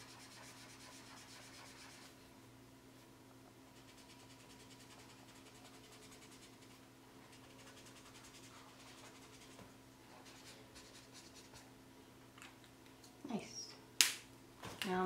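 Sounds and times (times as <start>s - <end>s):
marker scratching on paper: 0.0s - 2.1s, 3.8s - 9.6s, 10.2s - 11.6s
low room hum: 0.0s - 15.0s.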